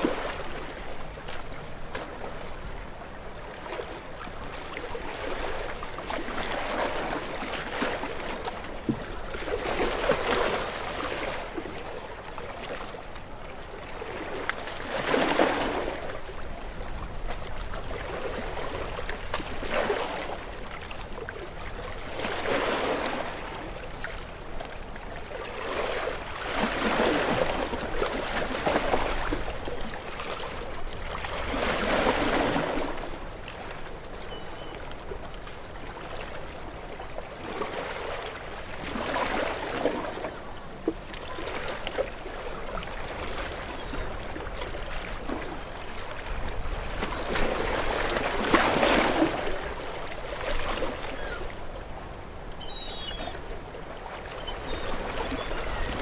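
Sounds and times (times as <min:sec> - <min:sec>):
ocean waves washing ashore: 0:00.0 - 0:56.0.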